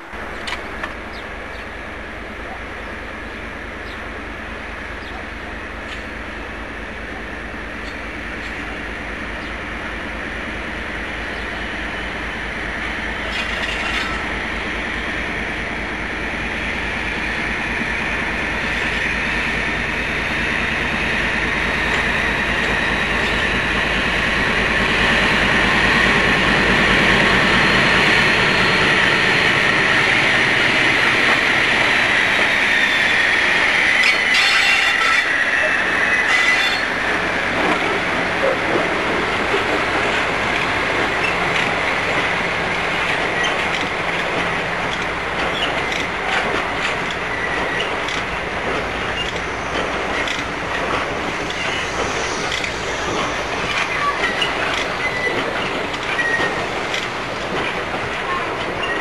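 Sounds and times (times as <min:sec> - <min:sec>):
diesel locomotive engine working: 0:00.0 - 0:59.0
high-pitched wheel squeal: 0:33.8 - 0:37.1.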